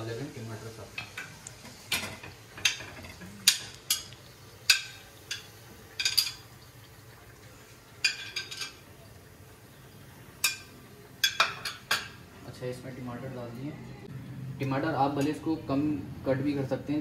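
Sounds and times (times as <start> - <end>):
metal spoon clinking against pan: 10.4 - 12.2.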